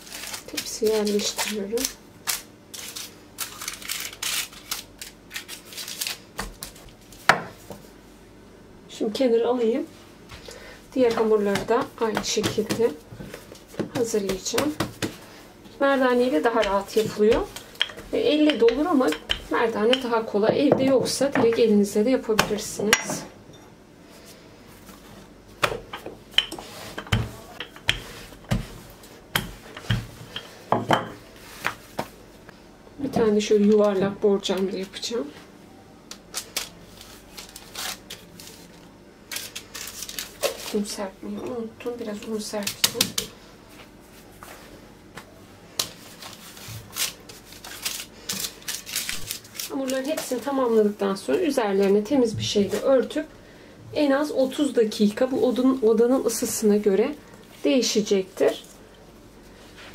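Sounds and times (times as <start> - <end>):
baking paper crinkling: 0.0 - 7.3, 36.2 - 41.1, 45.8 - 52.0.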